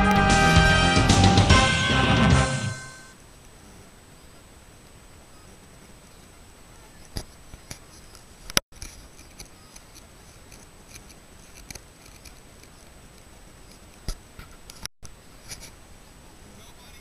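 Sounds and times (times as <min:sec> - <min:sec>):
thin high whine: 0:00.0 - 0:03.2
faint steady hiss: 0:03.0 - 0:17.0.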